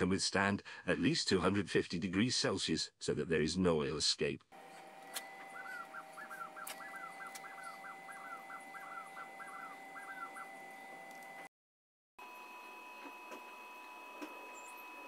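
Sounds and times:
faint steady high tone: 5.0s - 11.5s
bird calling short arched notes: 5.1s - 10.9s.

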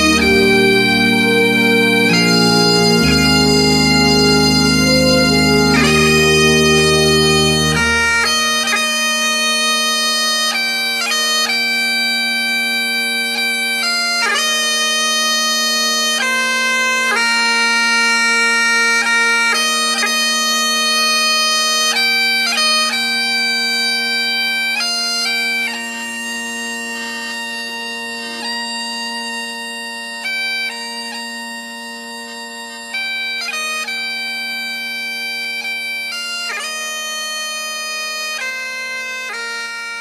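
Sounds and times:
bagpipes playing: 0.0s - 40.0s.

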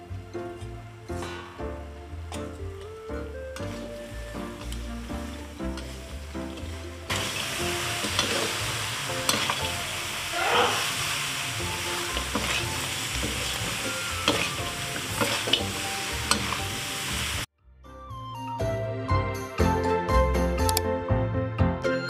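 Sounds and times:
sauce sizzling in a wok: 0.0s - 17.5s
spatula scraping a wok: 3.6s - 9.8s, 10.8s - 16.8s.

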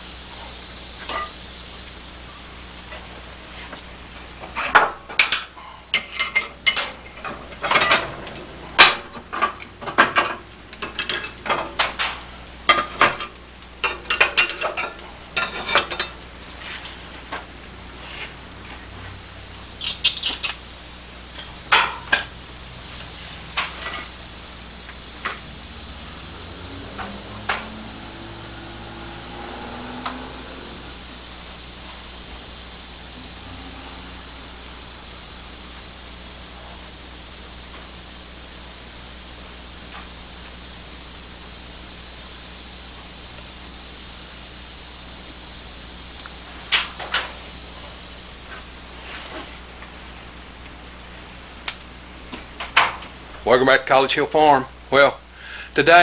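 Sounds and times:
steady hiss: 0.0s - 56.0s
metal clanking on wood stove: 1.0s - 1.4s, 4.2s - 17.5s, 19.8s - 20.7s, 21.3s - 24.2s, 46.2s - 48.0s.

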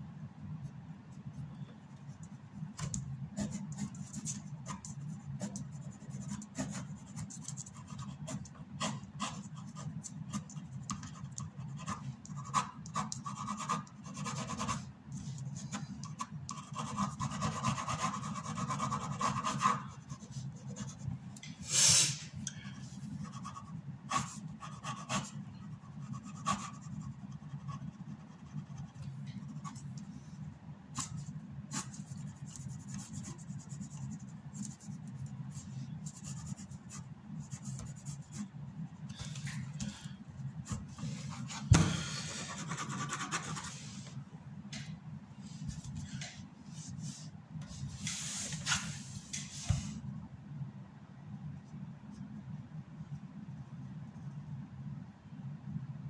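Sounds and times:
low steady hum: 0.0s - 56.0s
pen nib scratching paper: 3.4s - 21.0s, 23.2s - 29.9s, 31.0s - 38.5s, 42.5s - 43.7s.

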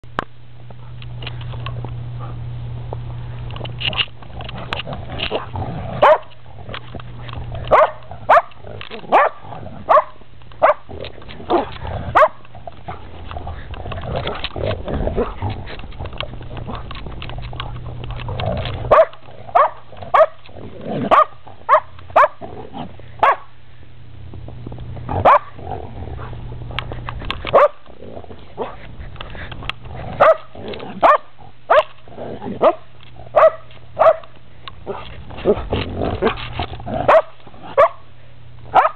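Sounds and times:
puppy barking: 5.3s - 6.4s, 7.7s - 10.9s, 11.5s - 12.5s, 18.9s - 20.4s, 21.1s - 22.4s, 23.2s - 23.5s, 25.2s - 25.6s, 27.5s - 27.8s, 30.2s - 31.9s, 32.6s - 34.3s, 37.0s - 38.1s.

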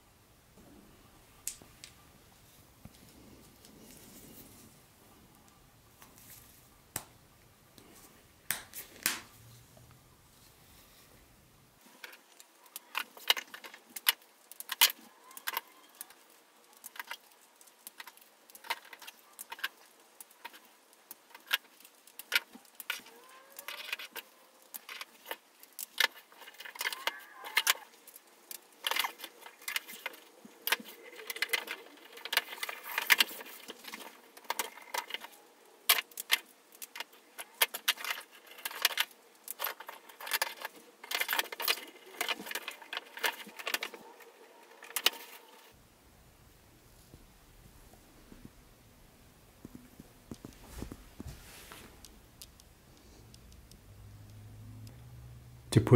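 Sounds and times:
plastic track pieces clicking: 12.0s - 44.1s.

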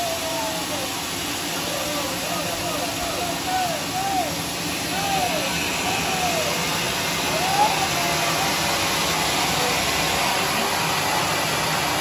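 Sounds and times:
circular saw sawmill running: 0.0s - 12.0s.

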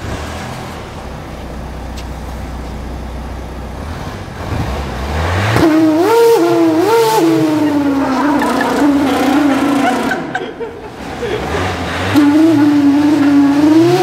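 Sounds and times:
car engine idle rumble: 0.0s - 5.1s.

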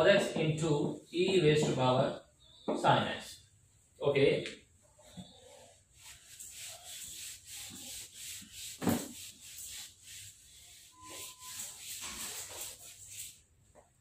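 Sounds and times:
eraser wiping whiteboard: 5.6s - 13.6s.

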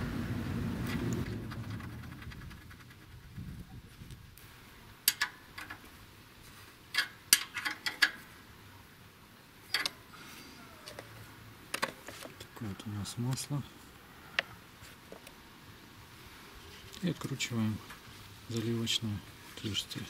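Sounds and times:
wrench clicking on metal bolt: 5.1s - 5.8s, 6.9s - 8.2s, 9.7s - 10.0s.

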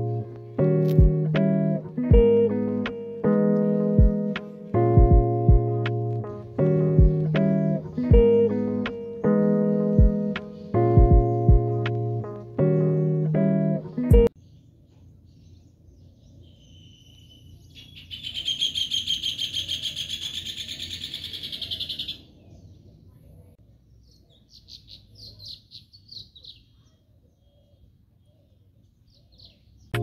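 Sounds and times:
faint outdoor background noise: 0.0s - 30.0s
bird chirps: 6.2s - 13.7s, 14.3s - 30.0s
bird trilling: 16.4s - 22.3s.

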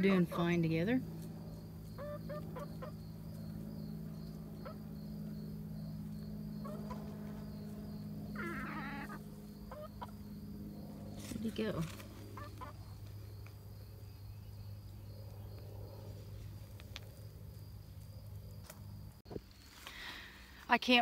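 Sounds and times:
chickens clucking: 0.0s - 5.4s, 6.5s - 13.6s
steady low hum: 0.0s - 21.0s.

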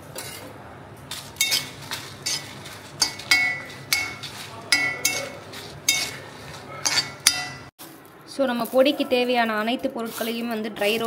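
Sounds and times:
metal spatula scraping metal pan: 0.1s - 0.5s, 1.1s - 7.7s.

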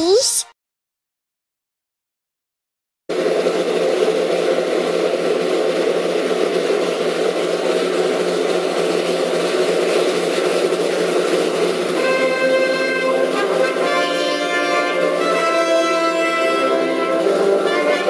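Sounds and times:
brass fanfare: 12.0s - 18.0s.

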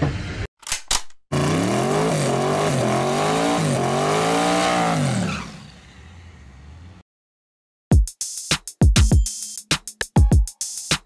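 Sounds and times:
car engine revving: 1.3s - 7.0s.

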